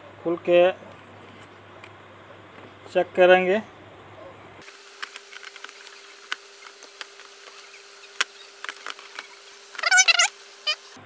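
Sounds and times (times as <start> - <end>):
clicks and scratches of handling parts: 5.0 - 10.3.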